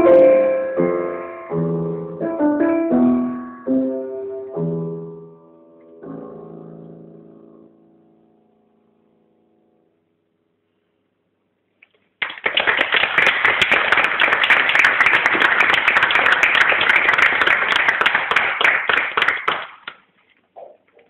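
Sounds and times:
audience applauding: 0:12.2 - 0:20.1.

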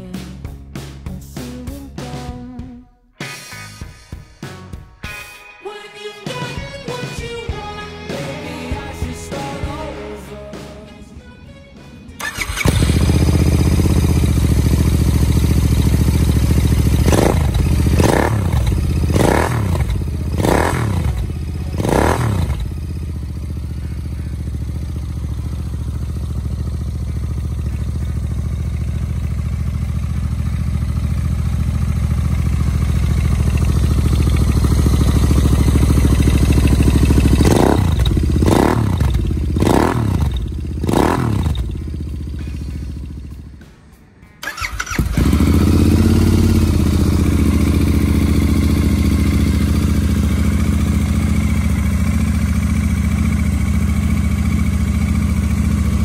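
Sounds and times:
motorcycle engine idling and revving: 0:12.2 - 0:43.8, 0:44.4 - 0:56.0.

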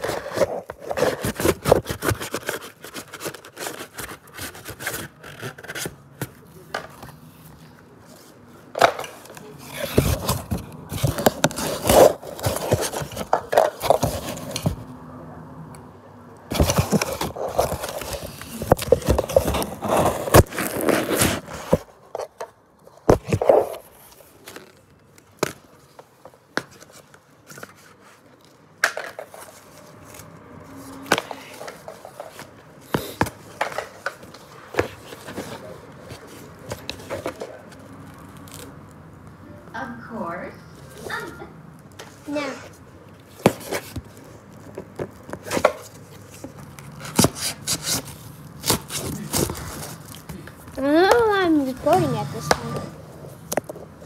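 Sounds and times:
cardboard scraping and ripping: 0:00.0 - 0:06.4, 0:09.6 - 0:14.8, 0:16.5 - 0:22.3, 0:43.3 - 0:53.4
paper rustling: 0:00.0 - 0:14.8, 0:16.5 - 0:39.0, 0:43.1 - 0:54.0.

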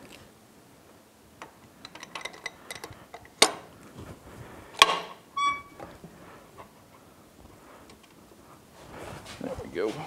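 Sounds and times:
metal parts clicking and clinking: 0:01.8 - 0:03.5
short ringing tone: 0:05.4 - 0:05.8.

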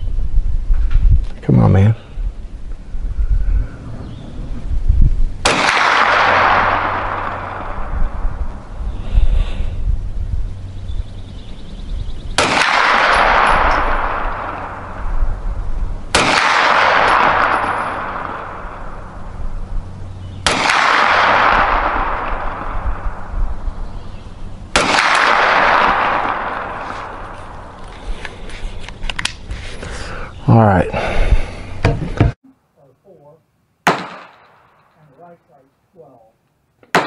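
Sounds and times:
gunshots with echo: 0:05.4 - 0:08.3, 0:12.4 - 0:15.1, 0:16.1 - 0:19.2, 0:20.4 - 0:23.3, 0:24.7 - 0:27.7, 0:33.8 - 0:34.8.

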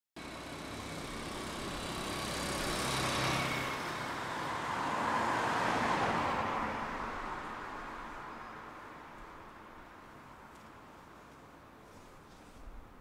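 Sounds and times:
motor scooter engine passing: 0:00.2 - 0:06.5
car tyres on road passing: 0:00.2 - 0:12.6.

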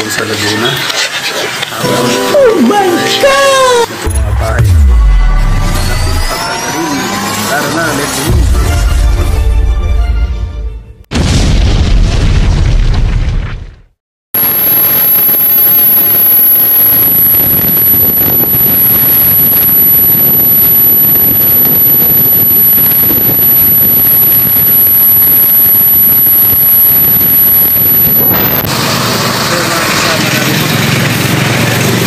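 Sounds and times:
high-pitched whine: 0:01.8 - 0:08.4, 0:14.4 - 0:31.9
explosion: 0:11.1 - 0:29.3
steady rushing noise: 0:14.4 - 0:30.2.

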